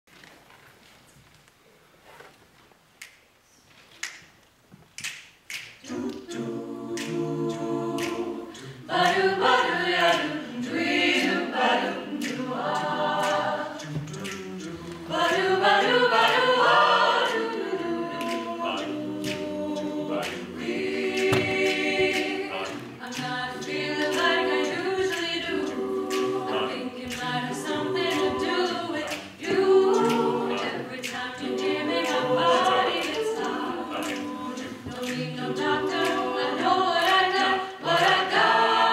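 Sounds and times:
a cappella group singing: 5.5 - 38.9.

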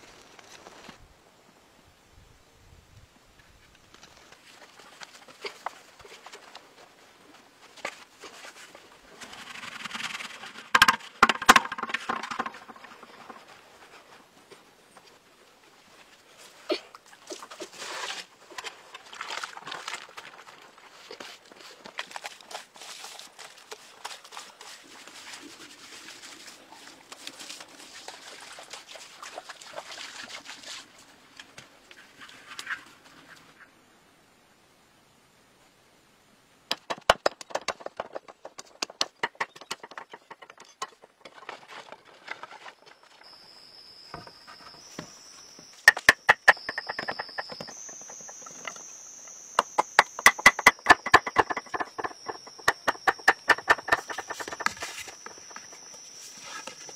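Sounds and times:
hands scraping soil: 21.1 - 28.1, 49.6 - 56.9
sharp ringing knocks: 45.9 - 47.8, 49.6 - 54.9.

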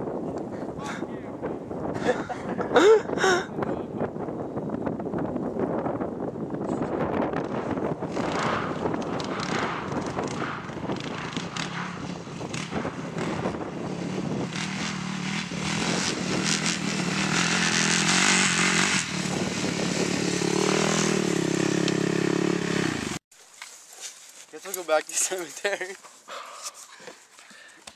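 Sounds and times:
quad engine revving: 7.3 - 23.2.

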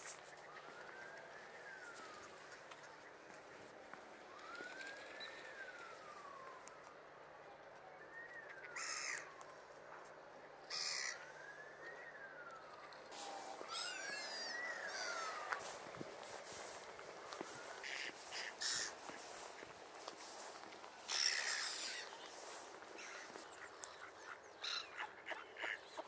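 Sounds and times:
siren wailing: 0.0 - 25.6
quick high bird calls: 13.6 - 15.6
harsh bird calls: 13.6 - 15.7, 17.7 - 19.3, 21.1 - 26.0.

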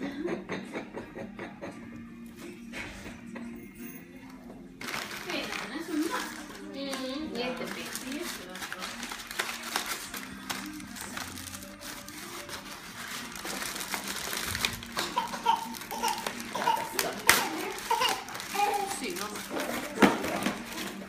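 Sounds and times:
background music: 0.0 - 21.0
paper and bubble wrap crinkling: 4.8 - 21.0.

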